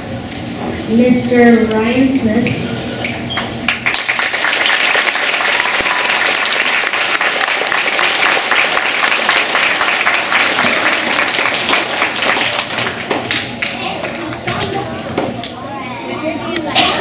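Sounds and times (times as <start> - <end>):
audience applauding: 3.7 - 14.4.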